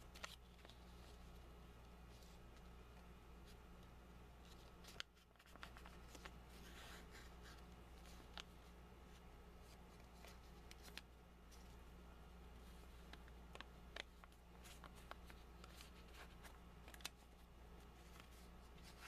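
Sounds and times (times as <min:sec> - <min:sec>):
paper bill crinkling and crackling: 0:00.0 - 0:01.3, 0:04.4 - 0:08.6, 0:12.8 - 0:19.0
low steady hum: 0:00.0 - 0:19.0.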